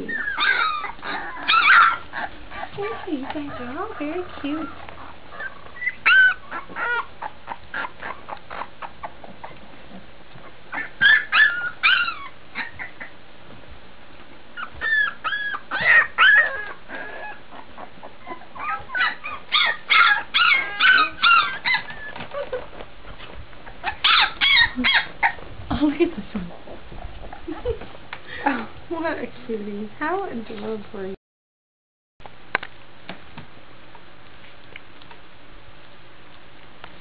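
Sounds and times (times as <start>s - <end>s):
puppies squeaking and whining: 0.0s - 13.2s, 14.4s - 28.0s.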